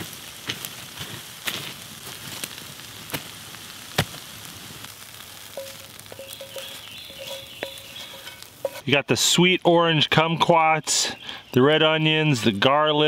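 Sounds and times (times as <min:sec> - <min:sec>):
campfire crackling and hissing: 0:00.0 - 0:13.0
fire popping: 0:00.0 - 0:13.0
spatula scraping skillet: 0:05.4 - 0:09.0.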